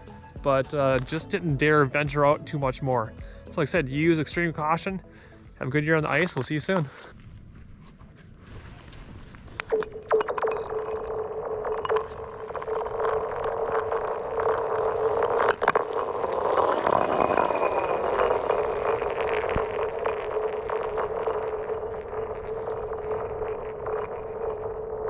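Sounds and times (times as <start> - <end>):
ice ringing in chirping tone: 9.7 - 25.0.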